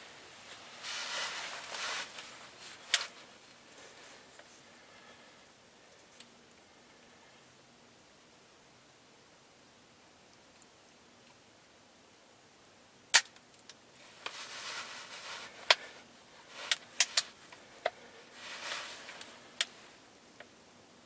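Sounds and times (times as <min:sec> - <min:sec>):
soft rustling: 0:00.0 - 0:05.3, 0:14.0 - 0:20.1
sharp metallic clicks of rifle lock: 0:13.1 - 0:13.4.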